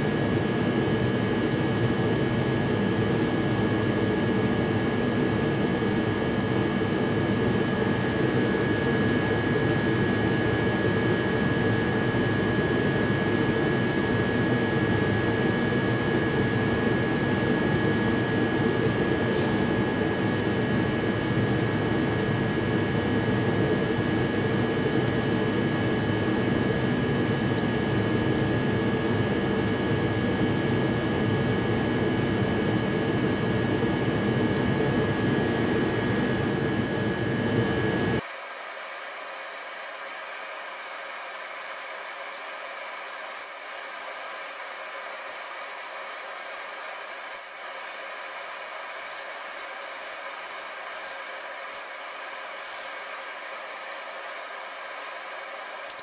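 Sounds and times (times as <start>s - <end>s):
whooshing machine drone with whine: 0.0s - 38.8s.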